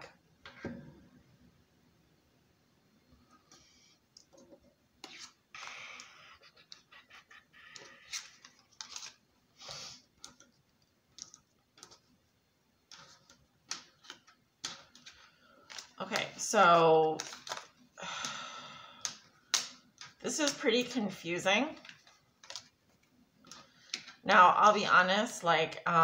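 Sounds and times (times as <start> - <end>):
cards sliding against cards: 5.0 - 10.0.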